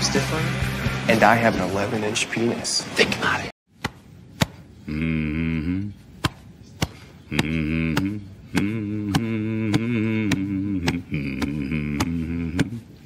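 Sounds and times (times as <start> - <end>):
man humming low chant: 4.8 - 6.2, 7.2 - 13.0.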